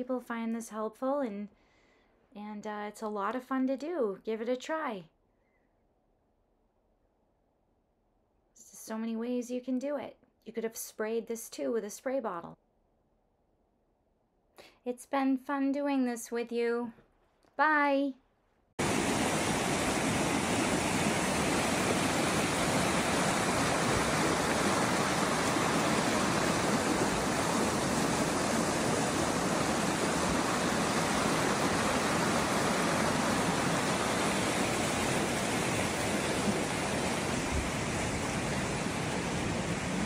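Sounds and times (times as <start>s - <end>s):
stream rushing over rocks: 18.8s - 40.0s.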